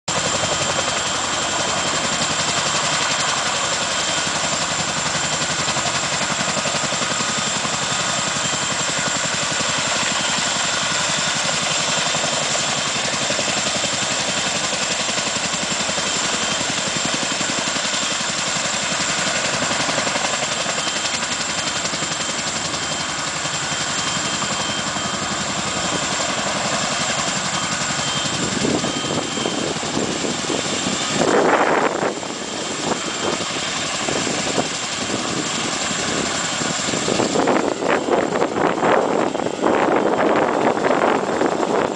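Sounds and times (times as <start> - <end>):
helicopter rotor chop: 0.1 - 41.9
high turbine whine: 0.1 - 41.9.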